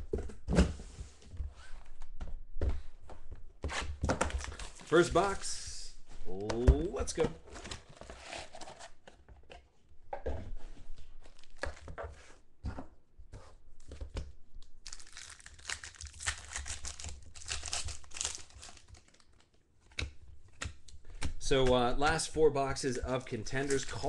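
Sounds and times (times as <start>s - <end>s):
foil packs crinkling and tearing: 14.8s - 19.5s.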